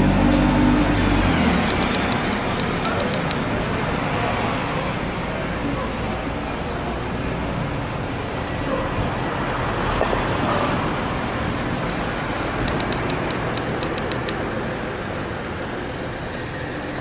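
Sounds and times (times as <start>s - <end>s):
traffic engine and tyre noise: 0.0s - 17.0s
sharp ticks: 1.7s - 3.4s, 12.6s - 14.5s.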